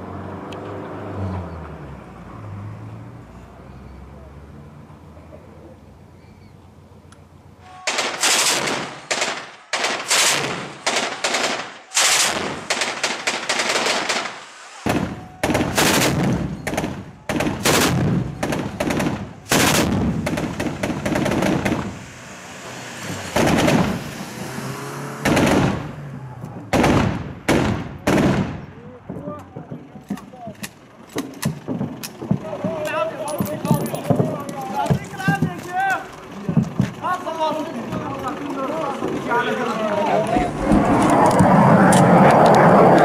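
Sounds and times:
automatic gunfire: 0:07.8 - 0:21.9, 0:25.2 - 0:25.8, 0:26.7 - 0:28.6.

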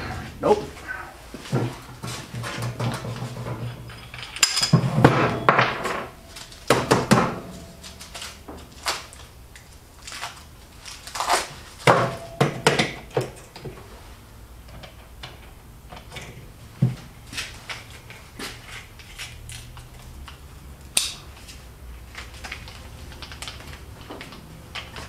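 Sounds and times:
metal tools clinking and rattling: 0:02.4 - 0:06.6.

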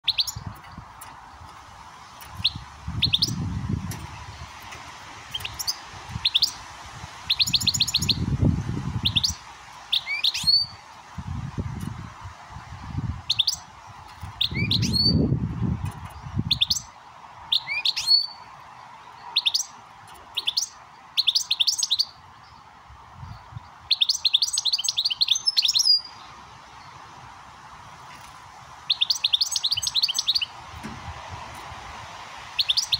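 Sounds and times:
bird twittering: 0:00.0 - 0:00.8, 0:02.1 - 0:03.5, 0:05.3 - 0:06.6, 0:07.3 - 0:08.2, 0:09.0 - 0:10.8, 0:13.3 - 0:13.7, 0:14.4 - 0:15.2, 0:16.5 - 0:16.9, 0:17.5 - 0:18.4, 0:19.3 - 0:22.2, 0:23.9 - 0:26.3, 0:28.9 - 0:30.5, 0:32.6 - 0:32.9
goldfinch calls: 0:00.0 - 0:00.8, 0:02.2 - 0:03.4, 0:05.3 - 0:06.6, 0:07.3 - 0:08.2, 0:23.9 - 0:26.3, 0:28.9 - 0:30.5, 0:32.6 - 0:32.9.

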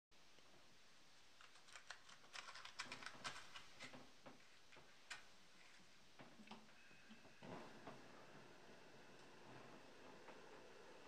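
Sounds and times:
faint clicks and rustles of handling: 0:00.3 - 0:08.4.

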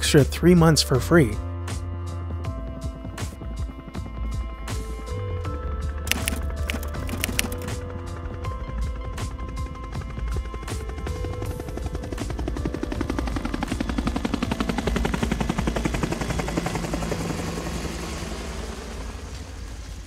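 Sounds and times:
background music: 0:00.0 - 0:18.8
helicopter rotors chopping: 0:05.9 - 0:19.9.

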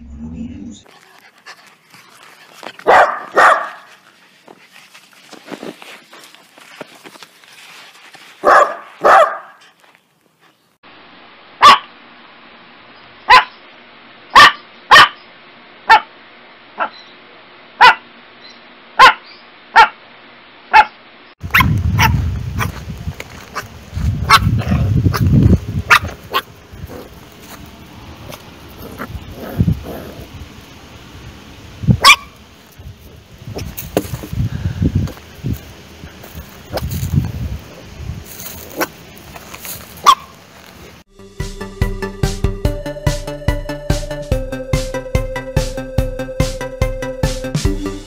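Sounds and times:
small dogs barking: 0:00.9 - 0:04.6, 0:08.4 - 0:09.8, 0:11.6 - 0:11.9, 0:13.2 - 0:13.6, 0:14.3 - 0:15.3, 0:15.9 - 0:16.1, 0:16.8 - 0:17.1, 0:17.8 - 0:18.1, 0:19.0 - 0:20.0, 0:20.7 - 0:22.8, 0:23.5 - 0:27.6, 0:32.0 - 0:32.4, 0:38.6 - 0:39.0, 0:39.9 - 0:40.4
puppy barking: 0:02.8 - 0:04.0, 0:08.4 - 0:09.7, 0:11.6 - 0:11.9, 0:13.3 - 0:13.6, 0:14.3 - 0:15.3, 0:15.9 - 0:16.1, 0:16.8 - 0:17.1, 0:17.8 - 0:18.1, 0:19.0 - 0:20.0, 0:20.7 - 0:22.8, 0:23.5 - 0:25.2, 0:25.9 - 0:27.1, 0:32.0 - 0:32.4, 0:40.0 - 0:40.3
wind on microphone: 0:21.4 - 0:27.2, 0:28.0 - 0:30.6, 0:31.3 - 0:32.2, 0:32.8 - 0:38.8.

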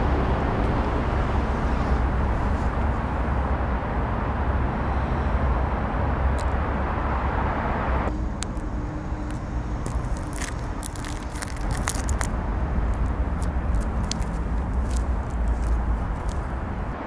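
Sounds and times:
street ambience rumble: 0:00.0 - 0:17.0
shoe grinding on gritty pavement: 0:09.3 - 0:17.0.

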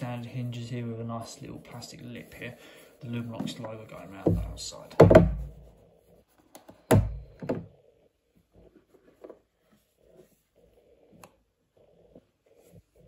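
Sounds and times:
plastic case knocks: 0:04.2 - 0:05.6, 0:06.9 - 0:07.7
plastic case thunk: 0:04.3 - 0:05.6, 0:06.9 - 0:07.7.

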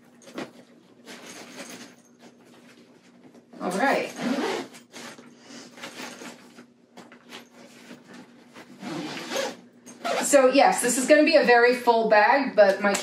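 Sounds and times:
fabric bag rustling and scraping: 0:00.2 - 0:10.4.

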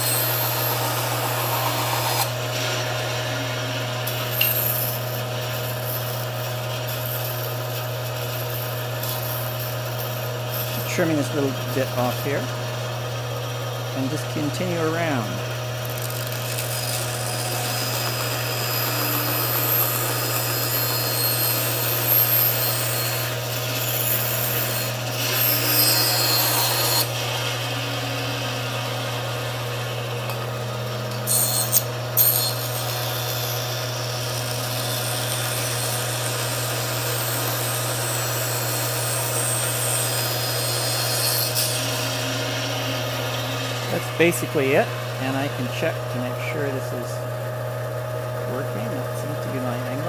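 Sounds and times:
saw blade cutting board: 0:00.0 - 0:12.7, 0:14.1 - 0:46.0
band saw motor hum: 0:00.0 - 0:50.0.

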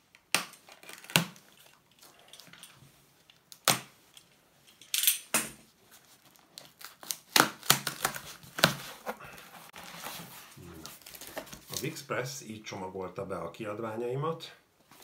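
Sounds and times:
tape tearing: 0:00.4 - 0:01.8, 0:06.2 - 0:09.2
cardboard flaps scraping and knocking: 0:08.1 - 0:11.7.

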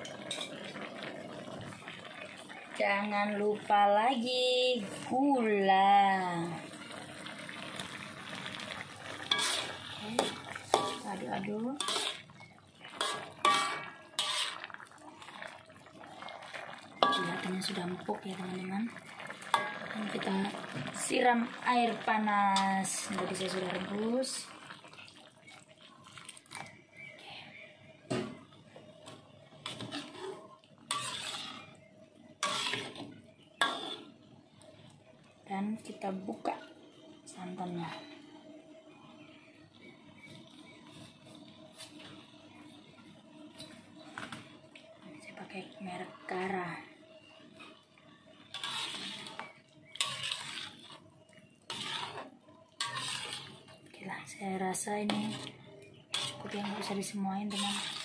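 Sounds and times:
metal spatula scraping a wok: 0:09.2 - 0:14.8, 0:17.0 - 0:17.8, 0:29.6 - 0:34.2, 0:48.4 - 0:53.8, 0:54.9 - 0:58.0.

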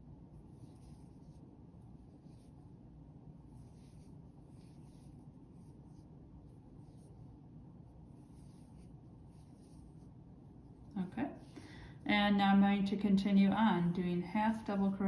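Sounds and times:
crochet hook rustling yarn: 0:00.0 - 0:11.5.

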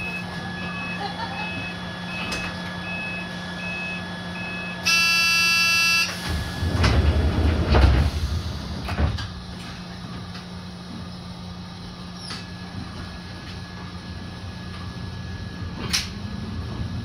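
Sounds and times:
departure buzzer: 0:00.0 - 0:06.2
short beeping signal: 0:02.1 - 0:06.2
sliding doors closing thuds: 0:06.2 - 0:09.4.

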